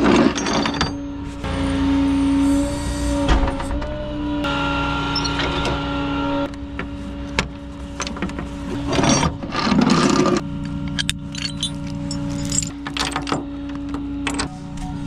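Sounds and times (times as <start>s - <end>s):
truck engine humming: 4.6s - 15.0s
chain and hook rattling: 10.9s - 13.4s.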